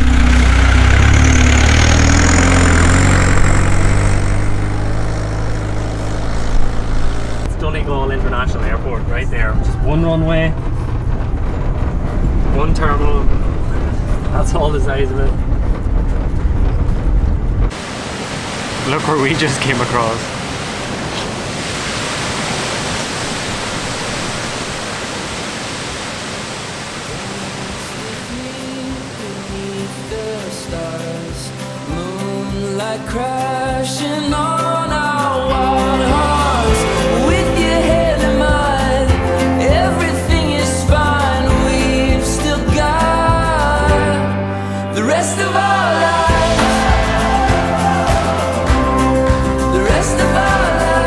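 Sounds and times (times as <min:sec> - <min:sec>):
van engine driving past: 0:00.0 - 0:17.8
waterfall roaring: 0:17.6 - 0:31.8, 0:45.7 - 0:49.4.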